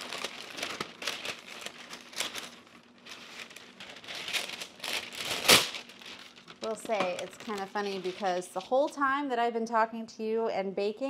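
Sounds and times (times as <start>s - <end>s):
parchment paper crinkling: 0.0s - 9.0s.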